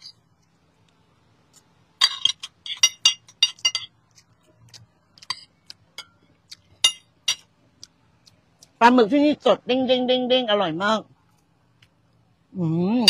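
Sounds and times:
cutlery clinking on plate: 0:02.0 - 0:04.0.

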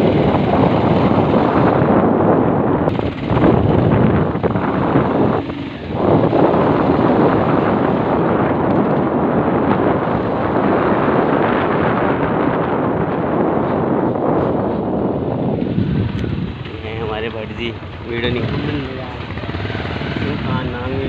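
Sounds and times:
motorbike engine running: 0:00.0 - 0:21.0
wind buffeting microphone: 0:00.0 - 0:21.0.

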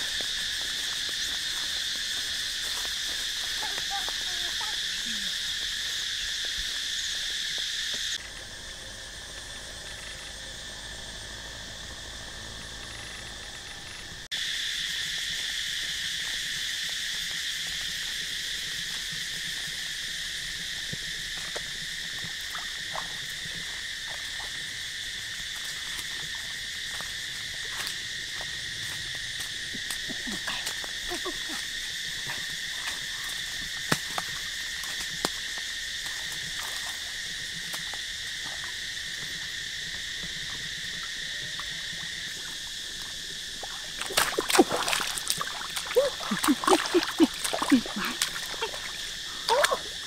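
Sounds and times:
insect chorus buzzing: 0:00.0 - 0:50.0.

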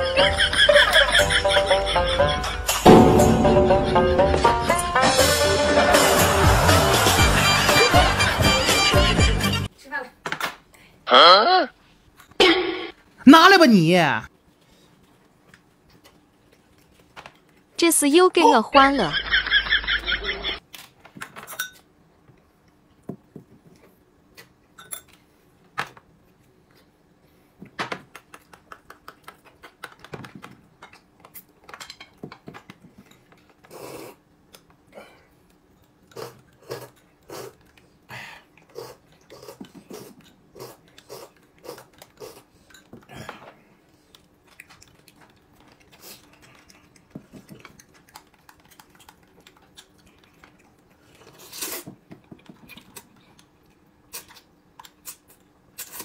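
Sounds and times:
dishes and utensils clinking: 0:21.4 - 0:21.9
chewing: 0:34.5 - 0:43.2, 0:43.9 - 0:56.0.

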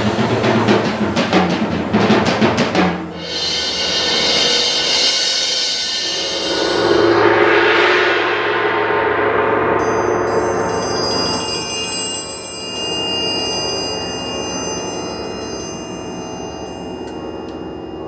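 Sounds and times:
fast drum strokes: 0:00.0 - 0:09.8
ringing metal percussion: 0:09.5 - 0:18.0.

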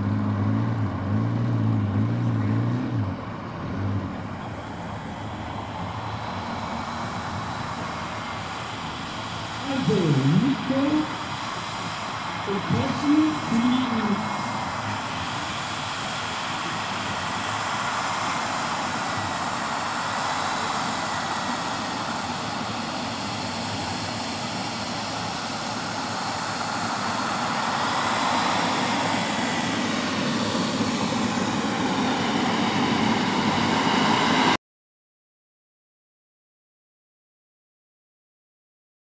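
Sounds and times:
model jet turbine whine: 0:03.4 - 0:34.6.

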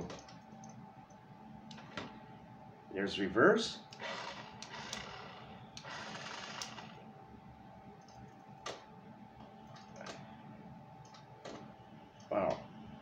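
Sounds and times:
toy car motor whirring: 0:04.0 - 0:06.9.

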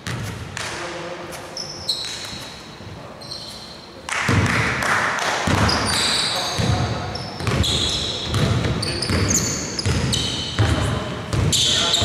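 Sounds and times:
basketball bouncing: 0:00.0 - 0:00.4, 0:04.3 - 0:04.7, 0:05.4 - 0:05.9, 0:06.6 - 0:11.6
sneakers squeaking on court: 0:01.5 - 0:04.0, 0:05.5 - 0:12.0.

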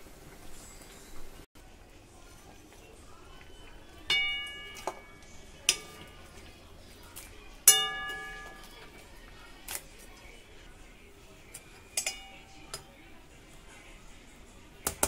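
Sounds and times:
steel ladle clinking on bowls: 0:03.6 - 0:06.5, 0:07.6 - 0:09.1, 0:11.5 - 0:13.0.

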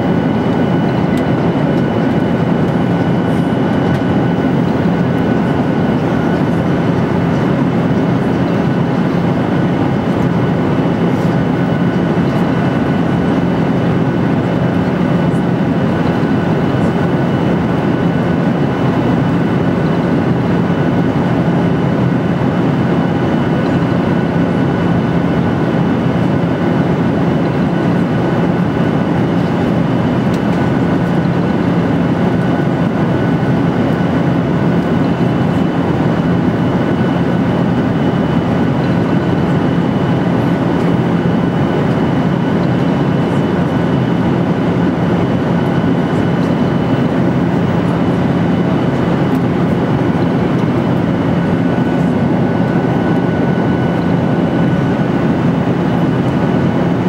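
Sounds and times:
airliner cabin engine rush: 0:00.0 - 0:57.0
constant low hum: 0:00.0 - 0:57.0.

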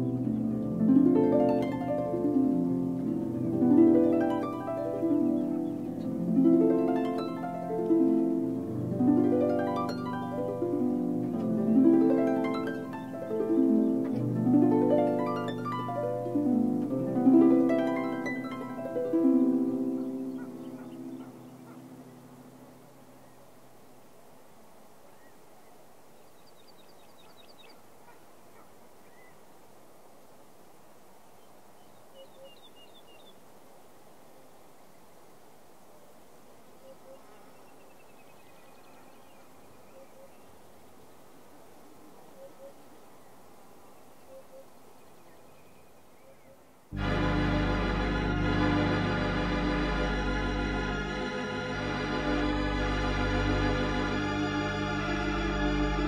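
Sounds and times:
small birds chirping: 0:00.0 - 0:08.7, 0:17.8 - 0:29.8, 0:31.2 - 0:33.6, 0:36.5 - 0:46.9
plucked strings music: 0:00.0 - 0:21.5, 0:47.0 - 0:56.0
steady hiss: 0:00.0 - 0:56.0.

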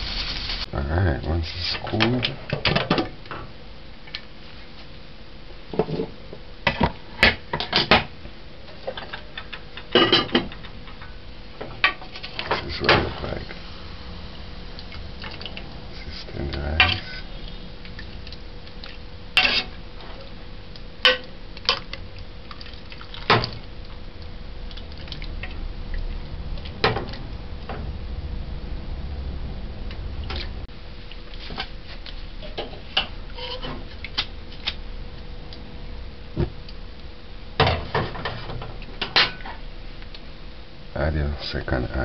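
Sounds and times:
metal ladle scraping pot: 0:15.3 - 0:17.6, 0:19.4 - 0:20.3, 0:32.4 - 0:33.8.

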